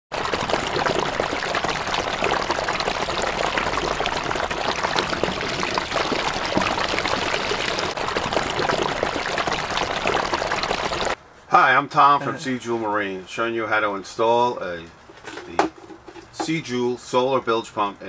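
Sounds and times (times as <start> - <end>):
pouring splashing water: 0.1 - 11.2.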